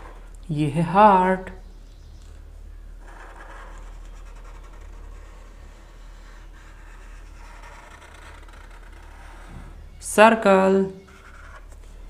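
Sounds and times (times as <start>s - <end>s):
low electrical hum: 0.0s - 12.0s
marker scratching on paper: 3.0s - 9.7s, 11.0s - 11.8s.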